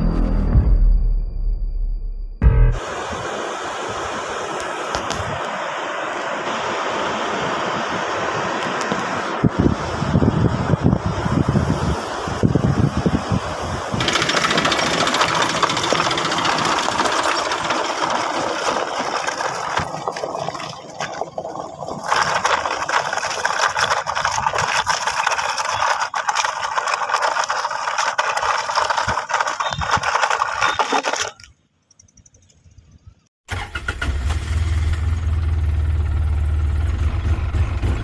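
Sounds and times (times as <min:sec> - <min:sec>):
toy truck wheels rattling over gravel: 0:14.0 - 0:31.5.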